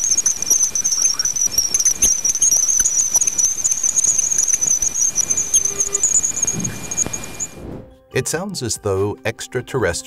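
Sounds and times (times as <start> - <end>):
high wavering hiss with crackles: 0.0 - 7.8.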